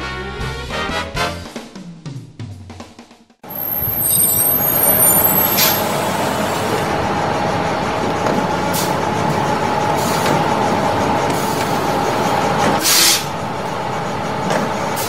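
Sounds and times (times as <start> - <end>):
high squeal: 3.4 - 14.2
bus engine running: 3.4 - 15.0
air brake hisses: 3.5 - 6.9, 12.8 - 13.4.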